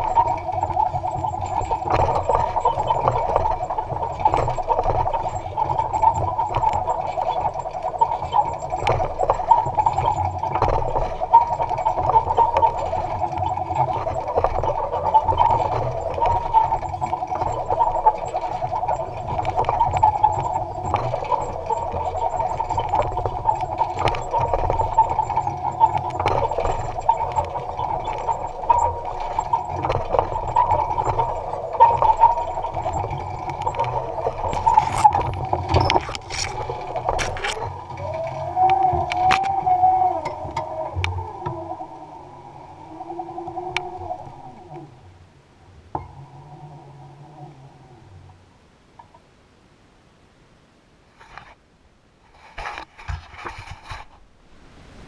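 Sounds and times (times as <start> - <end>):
clicks and rattles: 0.0 - 42.0
tractor mechanical hum: 0.0 - 49.3.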